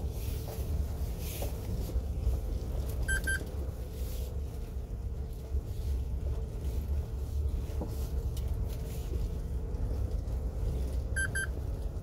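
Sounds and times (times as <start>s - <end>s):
truck engine and road rumble: 0.0s - 12.0s
short electronic beeps: 3.1s - 3.4s, 11.2s - 11.6s.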